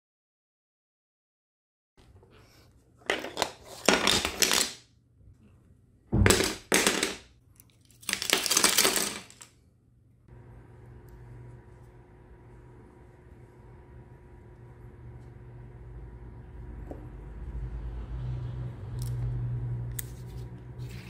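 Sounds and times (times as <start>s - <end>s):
plastic parts clattering on wooden floor: 3.0s - 4.8s, 6.2s - 9.5s.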